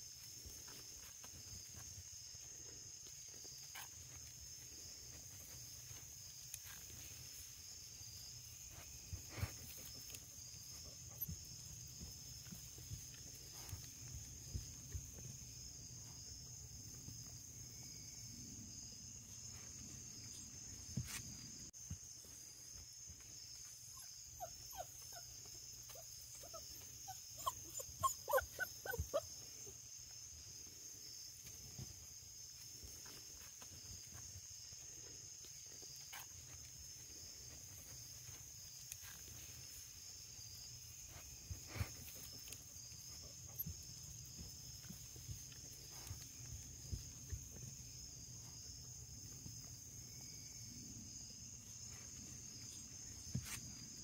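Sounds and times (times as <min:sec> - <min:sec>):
puppy whining: 0:23.9 - 0:29.5.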